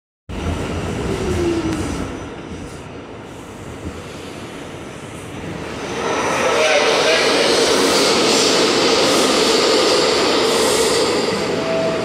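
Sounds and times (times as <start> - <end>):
subway train wheels rumbling: 0.3 - 12.0
train whine falling in pitch: 11.2 - 12.0.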